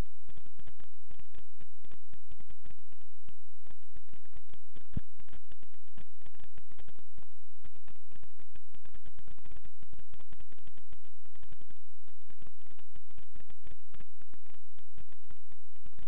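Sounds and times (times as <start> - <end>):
low steady hum: 0.0 - 16.0
rapid crackling clicks: 0.0 - 16.0.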